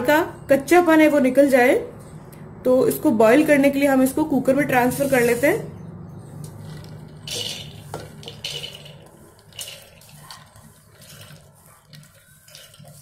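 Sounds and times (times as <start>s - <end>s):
wet lentils pattering into pot: 6.5s - 13.0s.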